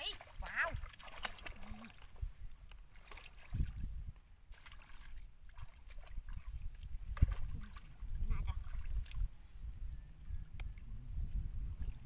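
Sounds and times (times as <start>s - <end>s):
sloshing in muddy water: 0.0s - 9.6s.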